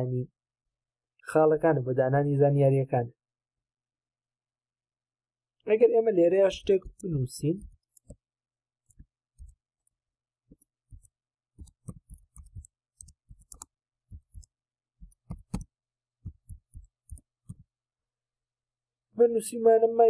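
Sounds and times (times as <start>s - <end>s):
keyboard key clicks: 15.1s - 17.6s.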